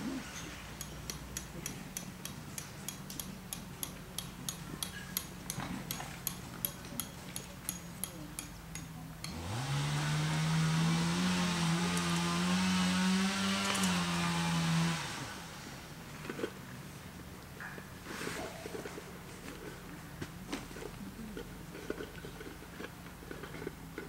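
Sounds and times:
small motor whirring: 9.3s - 15.9s.

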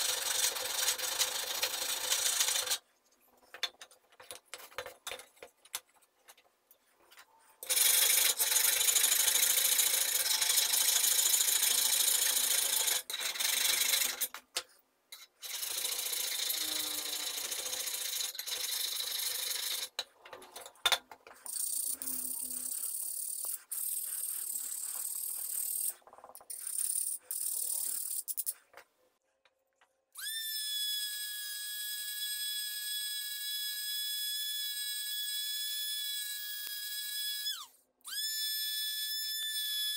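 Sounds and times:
rotary tool grinding whine: 15.4s - 19.9s.

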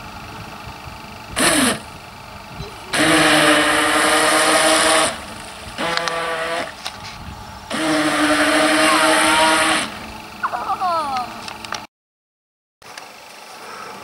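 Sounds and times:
toy speedboat motor whining: 1.4s - 1.8s, 2.6s - 11.3s
water spray hissing: 2.8s - 10.0s.

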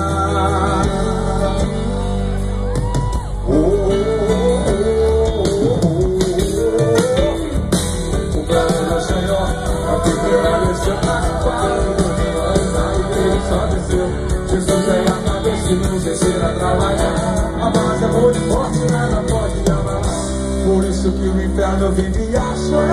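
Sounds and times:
bass: 0.0s - 22.9s
drums: 0.0s - 22.9s
electric guitar: 0.0s - 22.9s.

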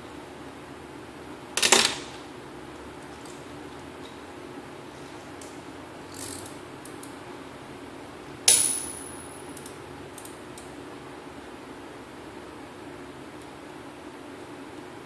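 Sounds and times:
steady low hum: 0.0s - 15.0s
sharp metallic clink: 8.5s - 9.5s.

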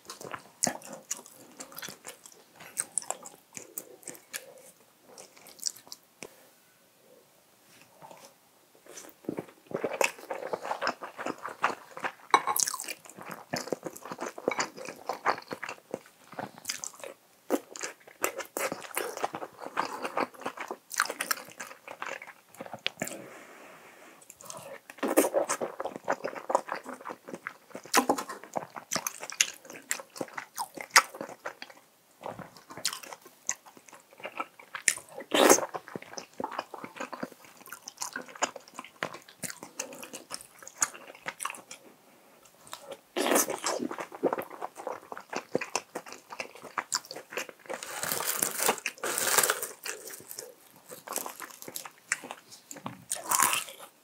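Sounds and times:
person chewing: 0.0s - 6.0s, 7.9s - 23.2s, 24.3s - 54.0s.

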